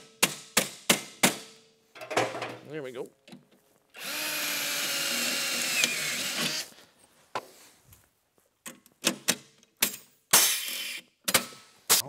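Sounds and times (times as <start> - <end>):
cordless drill drilling metal: 4.0 - 6.7.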